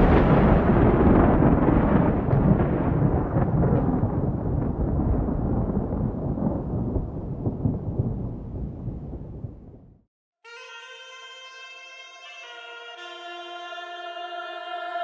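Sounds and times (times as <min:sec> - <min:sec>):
deep thunder-like rumble: 0:00.0 - 0:10.1.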